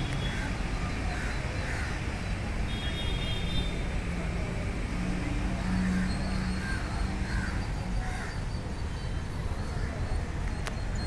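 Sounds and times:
low rumble of city traffic: 0:00.0 - 0:11.0
crows cawing: 0:00.3 - 0:02.0, 0:05.7 - 0:08.4.

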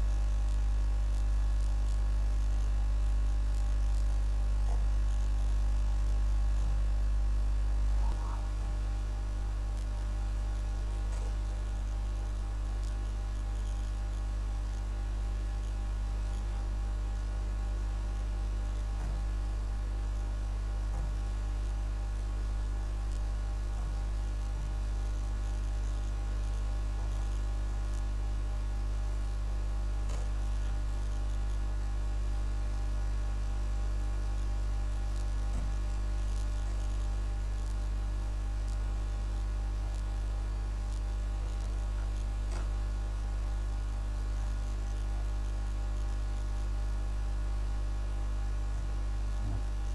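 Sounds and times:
electrical mains hum: 0:00.0 - 0:49.9.

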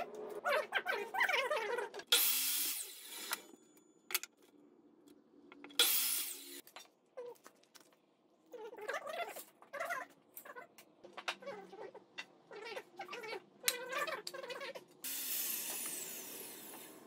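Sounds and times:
miter saw cutting boards: 0:15.1 - 0:17.0.

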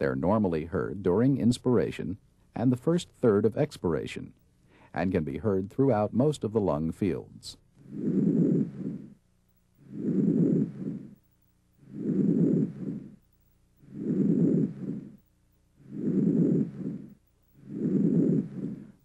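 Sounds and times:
soft breathing: 0:04.6 - 0:05.0, 0:07.8 - 0:19.0.

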